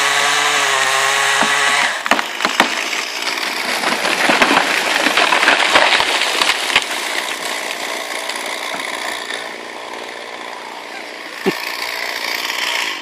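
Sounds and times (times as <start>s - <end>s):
branches cracking and snapping: 0.0s - 13.0s
chainsaw idling: 0.0s - 13.0s
tree crashing down: 0.4s - 9.4s.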